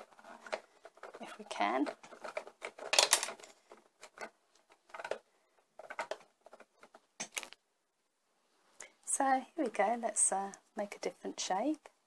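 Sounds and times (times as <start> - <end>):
plastic toy moulds clicking: 0.0 - 7.6.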